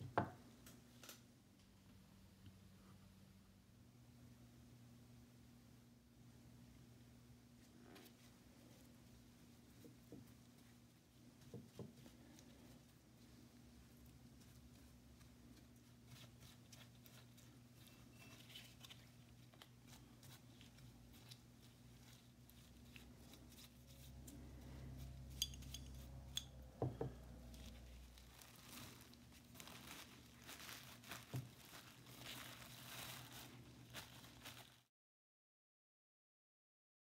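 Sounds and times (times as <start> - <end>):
low steady hum: 0.3 - 34.8
plastic crinkling: 7.6 - 26.1, 27.2 - 34.9
paint brush dabbing and scraping: 7.6 - 34.1.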